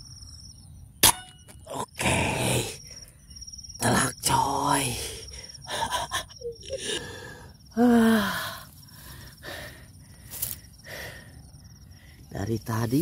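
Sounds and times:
insect trill: 0.0s - 13.0s.

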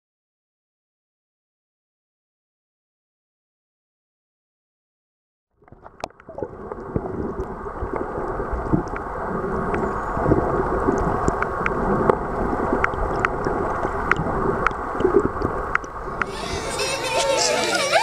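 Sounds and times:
muffled water rush: 5.6s - 18.0s.

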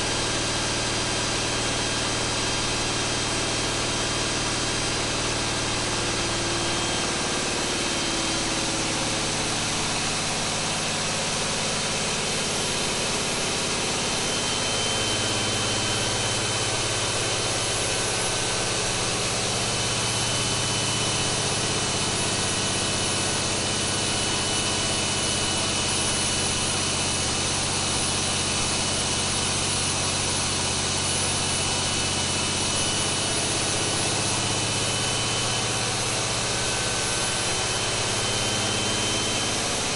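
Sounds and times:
diesel engine running at full throttle: 0.0s - 39.9s.

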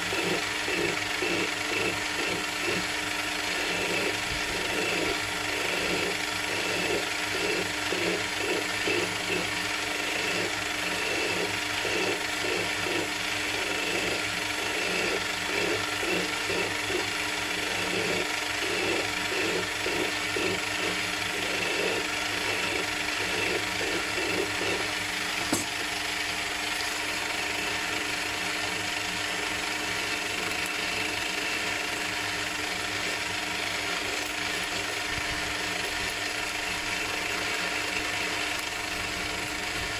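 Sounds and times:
hand file rasping on metal: 0.0s - 24.9s
metal lathe gear whine: 0.0s - 39.9s.

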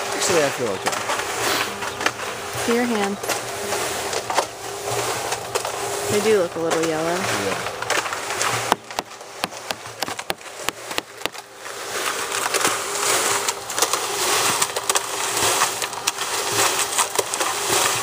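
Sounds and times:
cement mixer churning concrete: 0.0s - 18.0s
motor hum: 0.0s - 18.0s
sharp clicks and knocks: 6.6s - 11.5s.

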